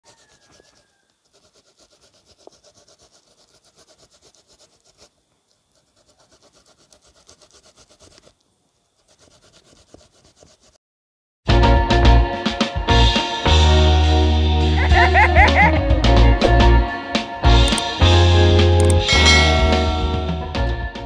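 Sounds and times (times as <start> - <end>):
banana rasping on a grater: 0.0 - 10.8.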